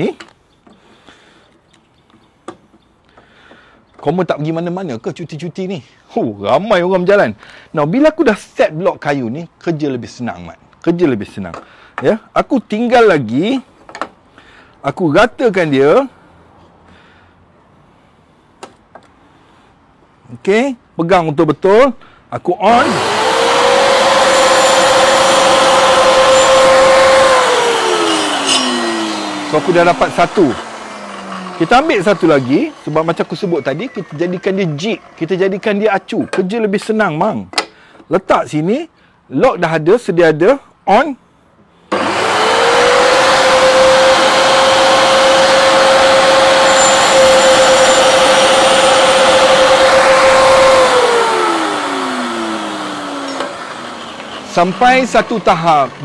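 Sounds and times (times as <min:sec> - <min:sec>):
saw blade spinning down: 0:22.7 - 0:36.0, 0:41.9 - 0:56.0
table saw whining: 0:22.7 - 0:36.5, 0:41.9 - 0:56.0.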